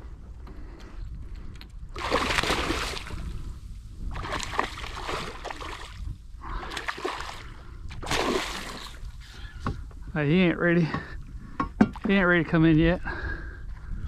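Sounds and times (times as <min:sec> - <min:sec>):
fish thrashing in water: 0:02.0 - 0:03.4, 0:04.1 - 0:09.1.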